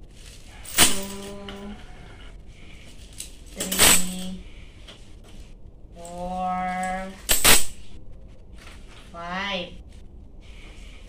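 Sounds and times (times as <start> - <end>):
coins clinking: 0.4 - 1.7, 2.8 - 4.5, 7.2 - 7.8.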